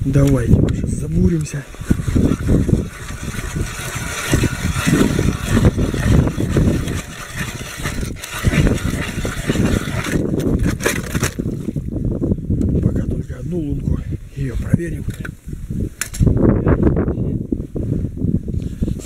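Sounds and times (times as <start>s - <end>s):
ice auger grinding through ice: 0.1s - 11.8s.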